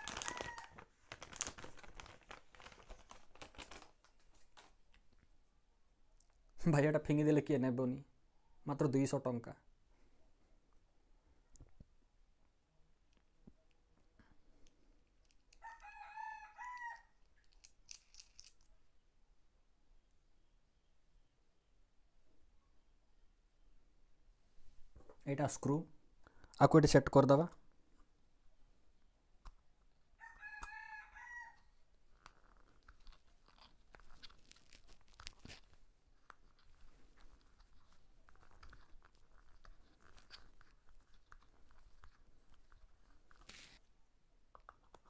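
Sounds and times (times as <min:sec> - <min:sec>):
faint rooster crowing: 0:00.0 - 0:00.8, 0:15.6 - 0:17.2, 0:30.2 - 0:31.7
plastic clicks and scrapes: 0:00.0 - 0:05.2, 0:17.2 - 0:18.7, 0:32.1 - 0:43.8, 0:44.5 - 0:45.0.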